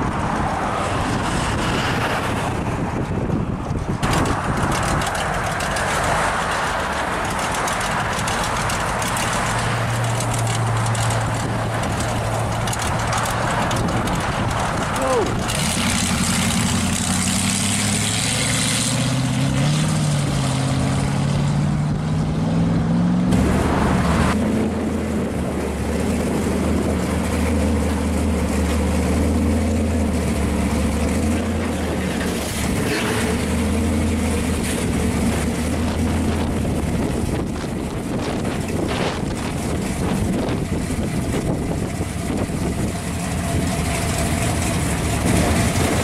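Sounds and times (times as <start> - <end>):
car engine idling: 3.4 - 18.5, 24.4 - 46.0
car engine pulling away: 3.7 - 46.0.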